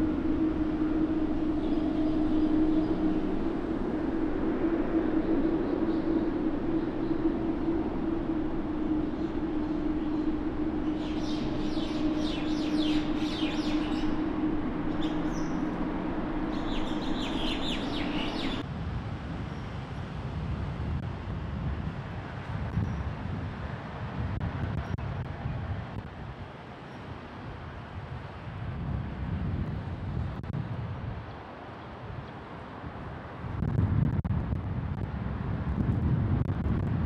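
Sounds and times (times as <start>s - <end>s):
jet engines humming: 0.0s - 18.6s
aircraft engines rumbling: 0.0s - 18.7s
small birds chirping: 8.7s - 18.6s.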